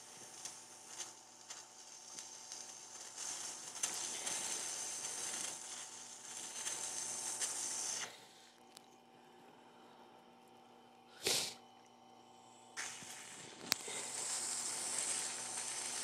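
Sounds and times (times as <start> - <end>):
wet hissing grinding scrape: 0.0 - 8.2, 12.8 - 16.0.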